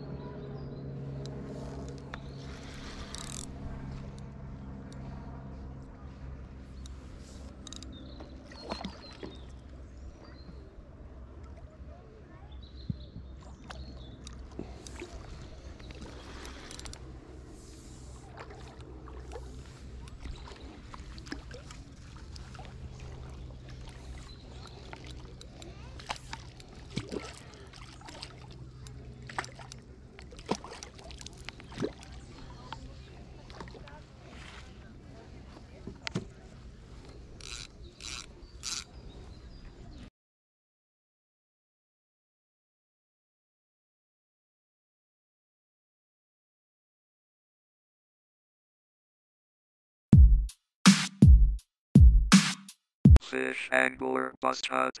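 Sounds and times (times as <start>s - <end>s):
steady low hum: 0.0s - 12.5s
water splashing and sloshing: 1.4s - 4.4s, 5.0s - 9.9s, 13.2s - 39.8s.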